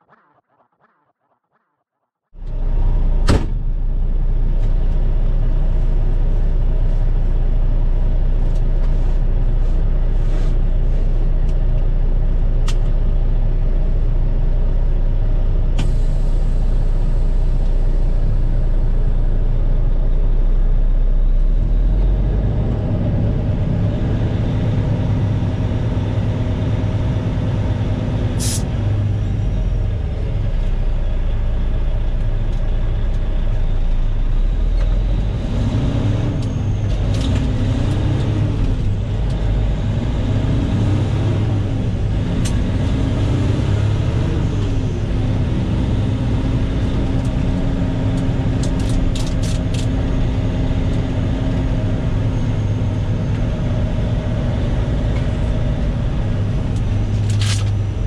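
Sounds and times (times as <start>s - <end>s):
diesel truck engine: 2.4s - 58.0s
short sharp air hiss: 28.4s - 28.6s.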